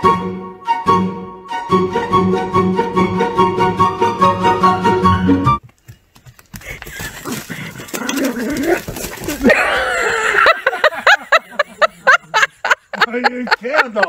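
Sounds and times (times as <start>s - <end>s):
music: 0.0s - 5.6s.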